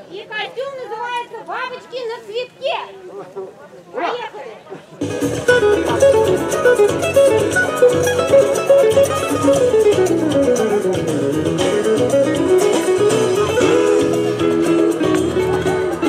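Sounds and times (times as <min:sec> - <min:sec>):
fast plucked-string melody: 0:05.0 - 0:16.0.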